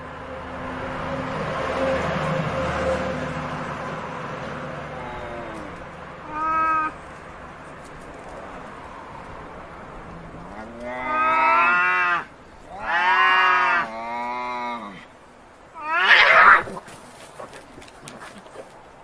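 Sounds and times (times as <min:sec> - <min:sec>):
cats yowling: 0:06.2 - 0:07.0, 0:10.6 - 0:13.9, 0:15.8 - 0:16.8.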